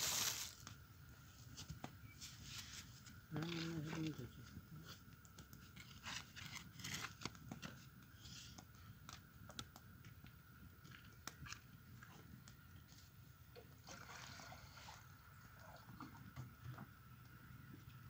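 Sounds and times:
small rustles: 0:00.0 - 0:10.2.

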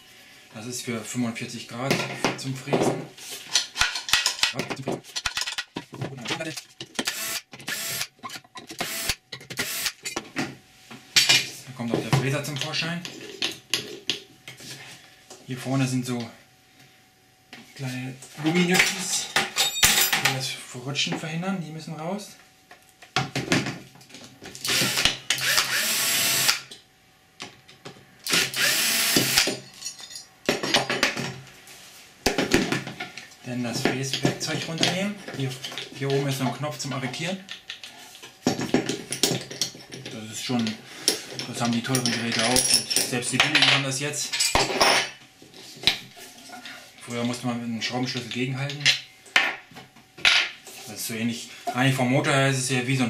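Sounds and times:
cordless drill running: 0:07.0 - 0:10.0, 0:24.7 - 0:26.7, 0:28.2 - 0:29.5.

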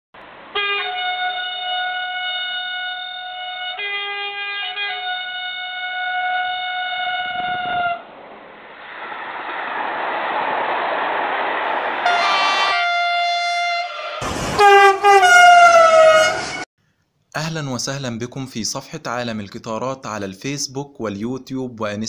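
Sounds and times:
train air horn chord: 0:00.5 - 0:08.0, 0:12.1 - 0:16.6
approaching train rumble: 0:05.0 - 0:16.7.

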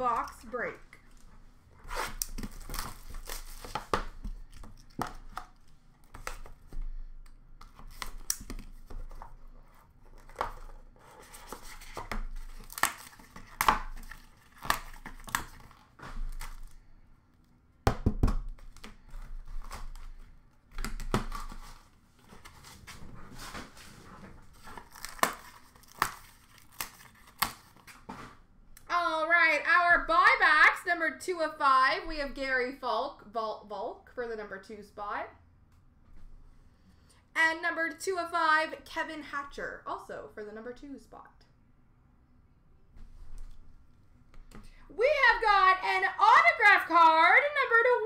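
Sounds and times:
plastic wrap tearing and crinkling: 0:01.8 - 0:06.6, 0:11.4 - 0:16.8, 0:20.8 - 0:28.1.

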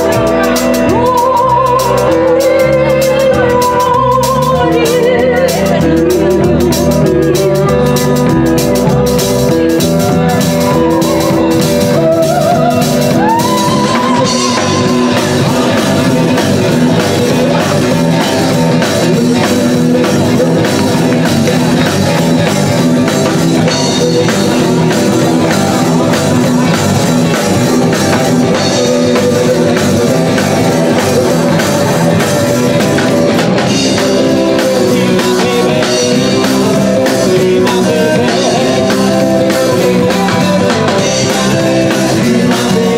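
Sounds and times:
person singing: 0:00.0 - 0:42.9
rock band playing: 0:00.0 - 0:42.9.

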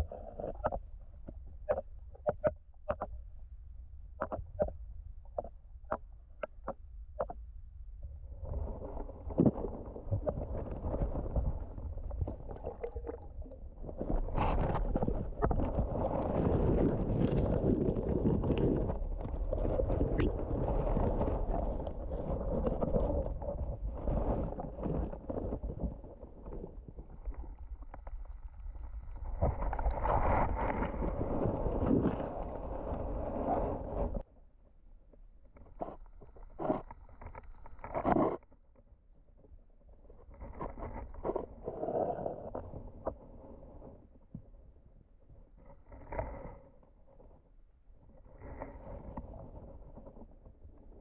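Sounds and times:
underwater rumble: 0:00.0 - 0:51.0
small clicks and crackles: 0:09.2 - 0:34.2, 0:35.4 - 0:38.9.

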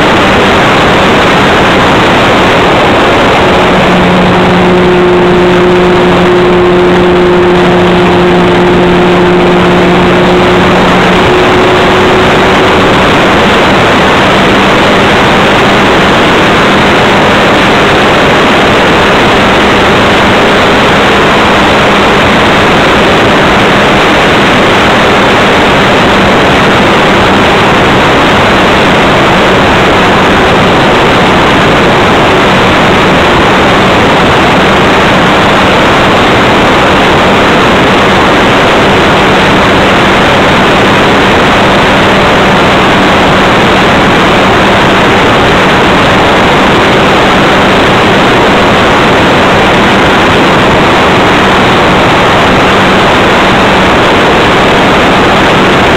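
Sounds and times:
wind rush over microphone: 0:00.0 - 0:55.9
model airplane motor hum: 0:00.2 - 0:30.6.

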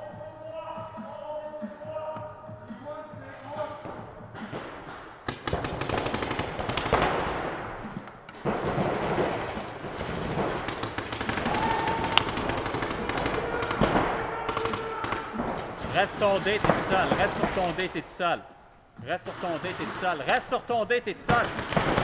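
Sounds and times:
paintball markers firing: 0:03.8 - 0:17.9, 0:21.3 - 0:22.0.

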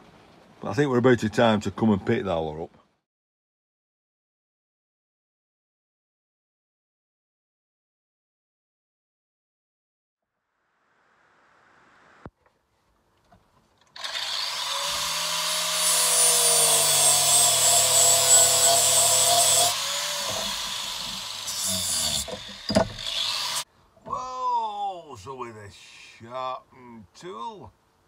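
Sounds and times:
angle grinder cutting metal: 0:14.0 - 0:23.7.

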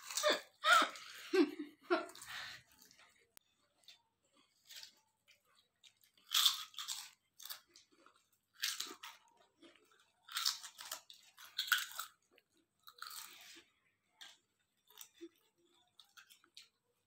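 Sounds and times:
chips being crunched and chewed: 0:03.8 - 0:13.6, 0:14.2 - 0:16.9.

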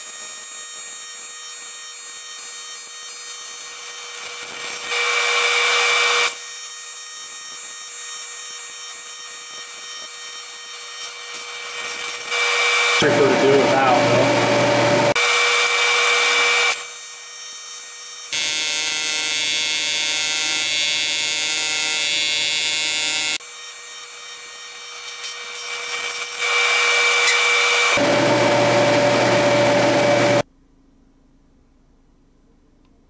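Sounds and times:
welding arc buzzing: 0:00.0 - 0:30.4.

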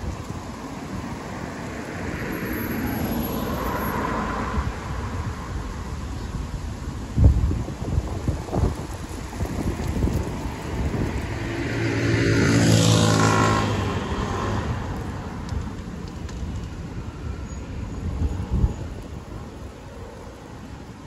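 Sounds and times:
low wind rumble: 0:00.0 - 0:21.0
traffic background: 0:00.0 - 0:21.0
vehicle driving past: 0:10.8 - 0:15.5.

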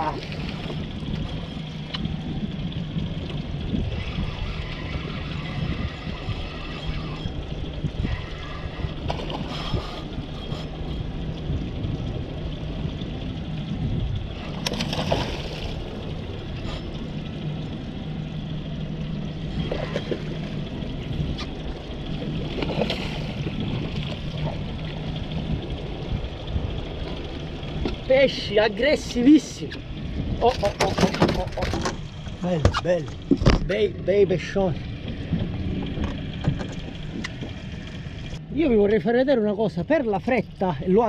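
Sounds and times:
steady low hum: 0:00.0 - 0:30.4
fish splashing in water: 0:14.4 - 0:16.0.

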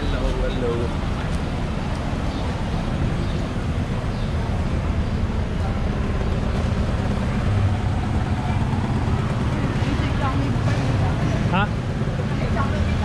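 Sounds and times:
low rumble of traffic: 0:00.0 - 0:13.0.

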